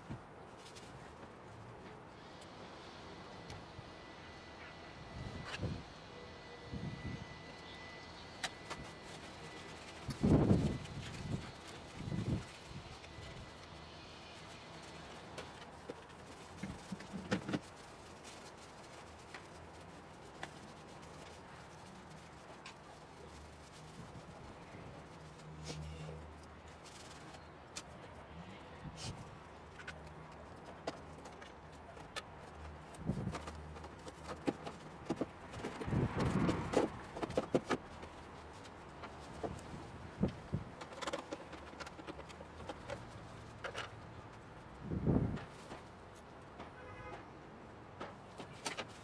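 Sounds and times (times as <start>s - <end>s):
rustling and shuffling: 0.0s - 2.1s, 8.5s - 46.8s, 47.9s - 49.0s.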